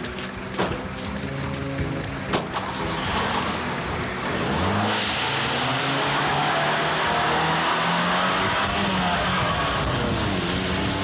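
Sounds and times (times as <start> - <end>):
car engine revving: 0.0 - 11.0
tyres hissing on wet road: 2.6 - 3.8.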